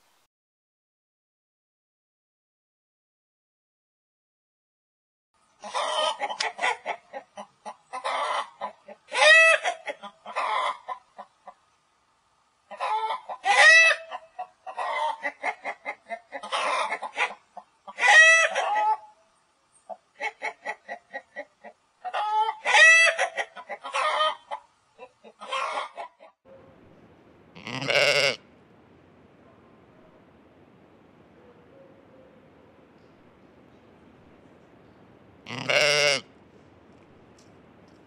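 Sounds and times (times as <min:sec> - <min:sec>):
chickens clucking: 0:05.6 - 0:11.7, 0:12.7 - 0:19.1, 0:19.9 - 0:26.4.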